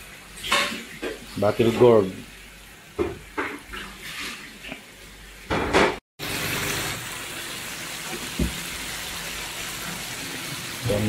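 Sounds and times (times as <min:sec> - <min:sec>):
food sizzling in frying pan: 0:06.2 - 0:11.0.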